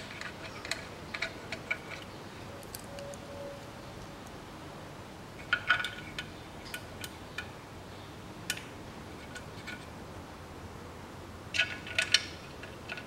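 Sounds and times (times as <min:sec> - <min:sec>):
small metallic clicks: 0:00.0 - 0:03.2, 0:11.5 - 0:13.0.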